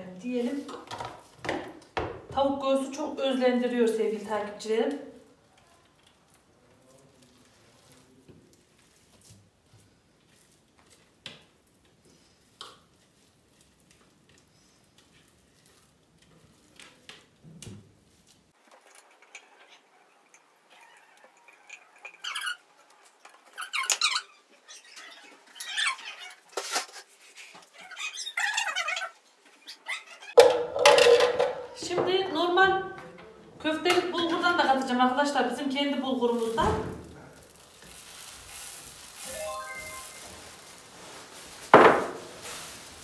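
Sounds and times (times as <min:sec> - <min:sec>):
spatula squeaking: 0:18.8 - 0:30.4.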